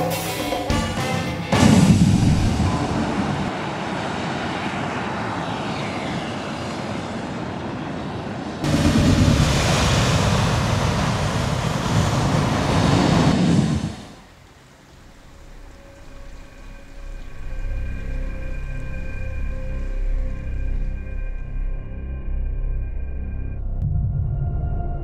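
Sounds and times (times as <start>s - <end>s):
gas flame jets roaring: 1.8s - 14.6s.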